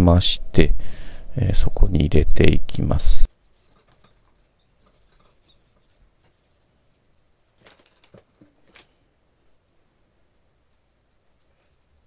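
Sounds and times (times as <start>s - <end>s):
faint clicks of small parts: 3.6s - 9.0s, 10.7s - 12.0s.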